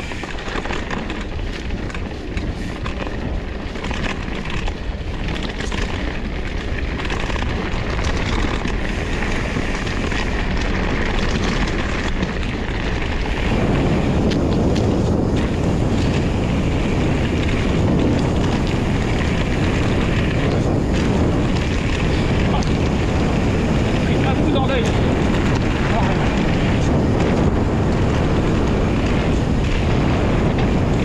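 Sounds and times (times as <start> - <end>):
small rattles and knocks: 0.0 - 13.6
bike tyres rolling on trail: 0.0 - 31.0
wind buffeting microphone: 0.0 - 31.0.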